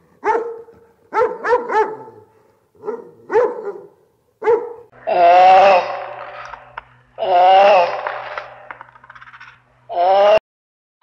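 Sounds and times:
dogs barking in sharp yips: 0:00.2 - 0:04.9.

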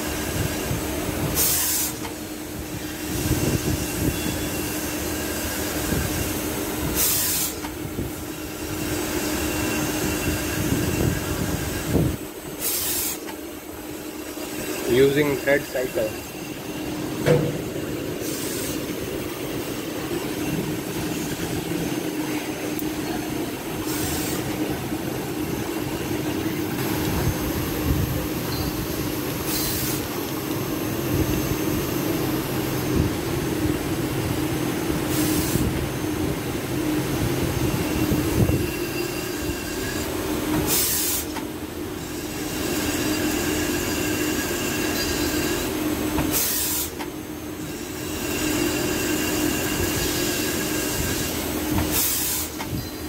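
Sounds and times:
lathe cutting rushing burst: 0:00.0 - 0:28.5
machine hum: 0:02.4 - 0:39.0.

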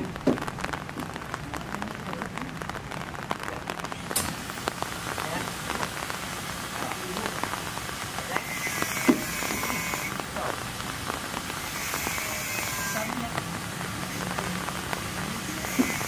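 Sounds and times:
rain-like patter with ticks: 0:00.0 - 0:16.0
faint voices: 0:06.7 - 0:10.6, 0:12.0 - 0:16.0.

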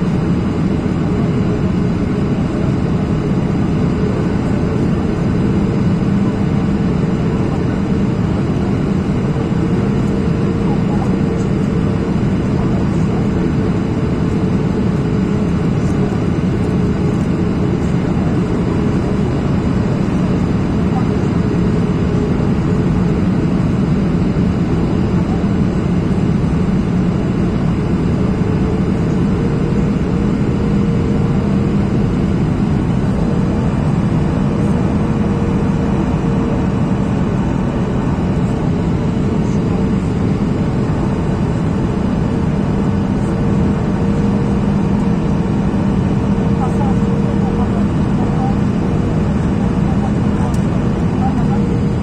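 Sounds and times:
jet engines: 0:00.0 - 0:52.0
low hum: 0:26.2 - 0:52.0.

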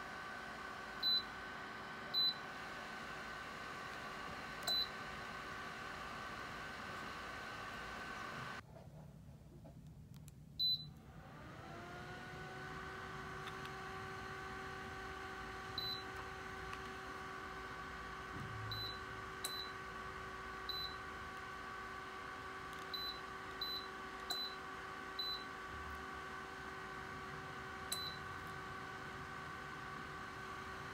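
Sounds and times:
heater fan humming: 0:00.0 - 0:08.6, 0:09.4 - 0:30.9
loud heater beep: 0:01.0 - 0:01.4, 0:02.1 - 0:02.6, 0:04.6 - 0:05.0, 0:15.8 - 0:16.2, 0:18.6 - 0:19.8, 0:20.7 - 0:21.1, 0:22.9 - 0:24.6, 0:25.2 - 0:25.6, 0:27.9 - 0:28.4
control panel short beeps: 0:10.6 - 0:11.0, 0:27.9 - 0:28.2.

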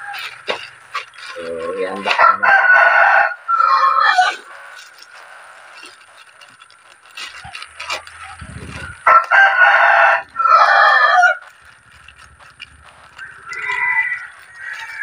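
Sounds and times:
rooster crowing: 0:00.0 - 0:00.7, 0:01.3 - 0:04.7, 0:08.7 - 0:11.5, 0:13.0 - 0:15.0
plastic bag crinkling: 0:00.0 - 0:15.0.

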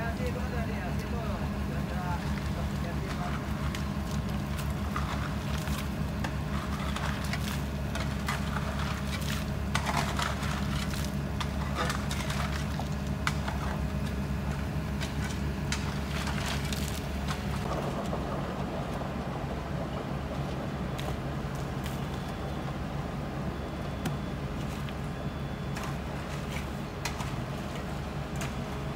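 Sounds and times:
diesel engine running: 0:00.0 - 0:28.9.

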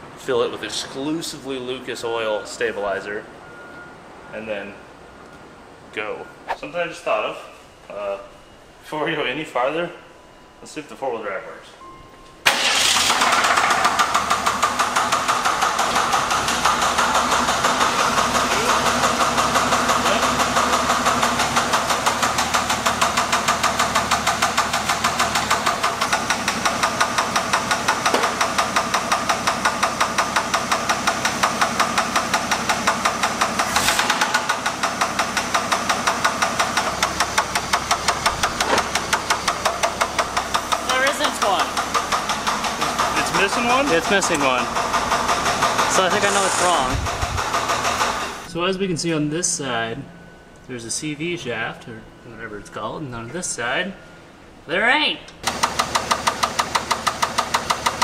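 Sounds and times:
car engine running: 0:12.5 - 0:48.5, 0:55.4 - 0:58.0
rapid rhythmic engine knock: 0:13.2 - 0:46.6, 0:47.2 - 0:48.4, 0:55.4 - 0:58.0.

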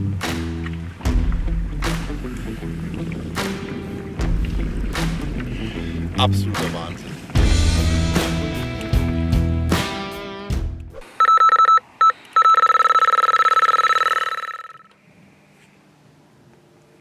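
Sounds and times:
background music: 0:00.0 - 0:11.0
electronic bite alarm beeping: 0:11.2 - 0:14.9.

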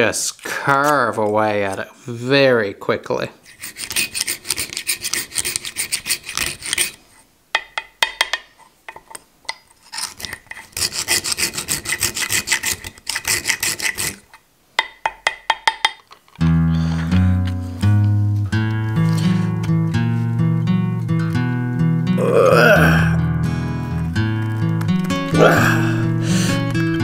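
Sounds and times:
broaching tool rasping: 0:00.6 - 0:01.8, 0:03.4 - 0:07.2, 0:09.5 - 0:14.4
acoustic guitar music: 0:16.4 - 0:27.0.

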